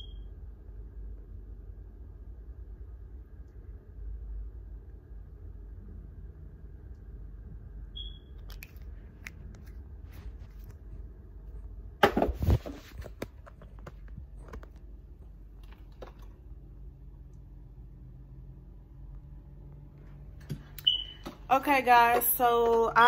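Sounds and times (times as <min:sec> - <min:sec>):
low steady hum: 0:00.0 - 0:23.0.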